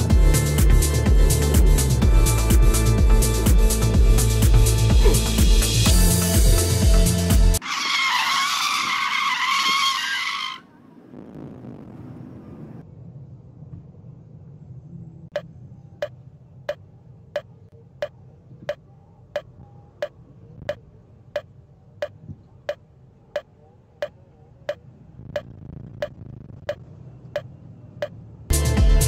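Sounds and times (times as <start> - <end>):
low steady rumble: 0.0 - 7.6, 10.7 - 29.0
steady ticking: 19.4 - 28.2.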